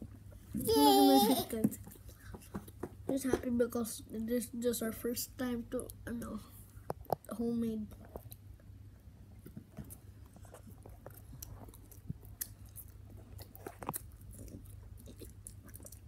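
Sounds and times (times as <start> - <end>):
low steady hum: 0.0 - 16.0
children chewing: 9.3 - 16.0.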